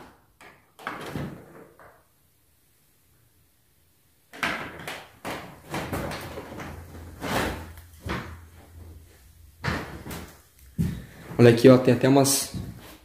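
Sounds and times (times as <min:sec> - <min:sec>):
scuffing footsteps and knocks: 0:05.2 - 0:13.0.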